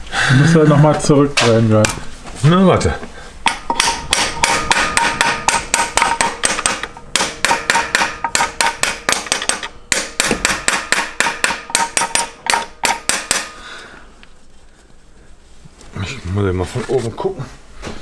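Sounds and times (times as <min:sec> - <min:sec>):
metal tool clicking and knocking: 0:03.4 - 0:13.5.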